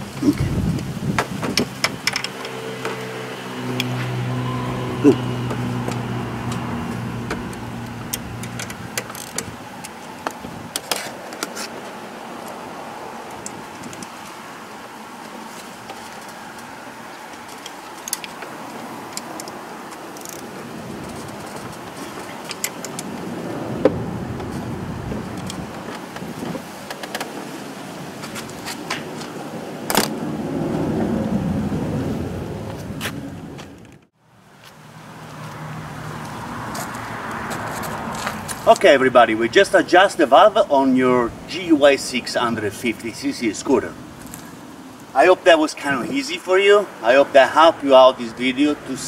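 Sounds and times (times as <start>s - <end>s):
socket wrench clicking on bolts: 1.6s - 2.6s, 7.8s - 10.0s
ratchet wrench clicking: 20.2s - 20.4s.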